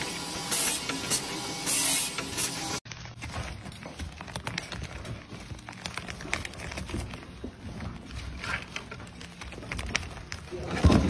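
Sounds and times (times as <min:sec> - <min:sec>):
crackling and crumbling clicks: 0:03.0 - 0:11.0.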